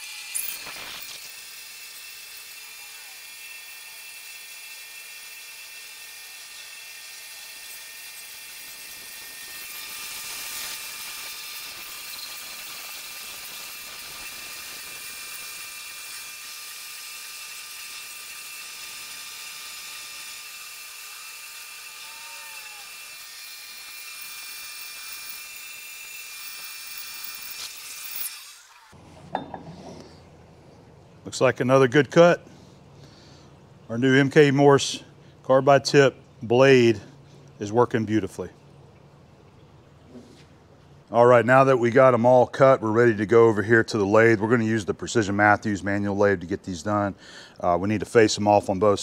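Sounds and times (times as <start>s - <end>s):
bandsaw cutting steel tubing: 0.0s - 29.0s.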